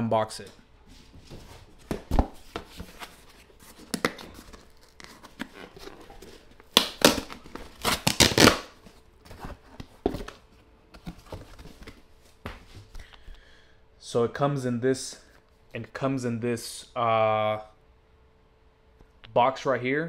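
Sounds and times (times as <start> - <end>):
paper packaging rustling: 1.3 - 10.4
paper tearing: 7.0 - 8.7.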